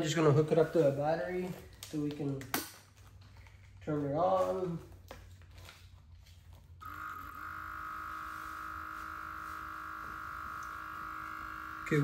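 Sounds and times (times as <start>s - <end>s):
air compressor motor whining: 6.8s - 12.0s.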